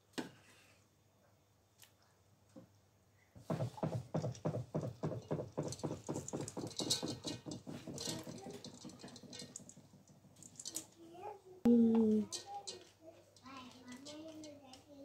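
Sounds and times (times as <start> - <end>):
rice tapping and rattling in pan: 3.4 - 11.0.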